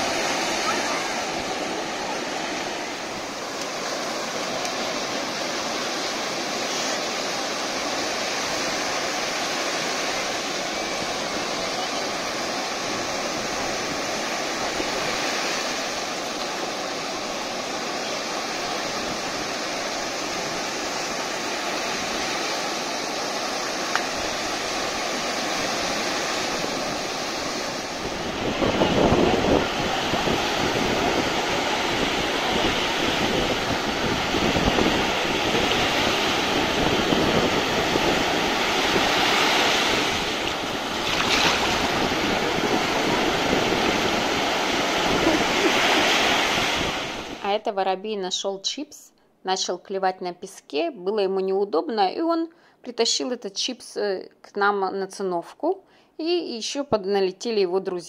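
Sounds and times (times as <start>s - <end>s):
surf breaking on a beach: 0.0s - 47.5s
wind buffeting the microphone: 23.1s - 47.4s.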